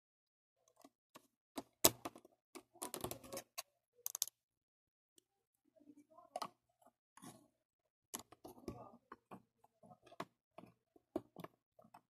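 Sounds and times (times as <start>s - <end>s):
plastic pieces clicking: 4.0s - 4.4s.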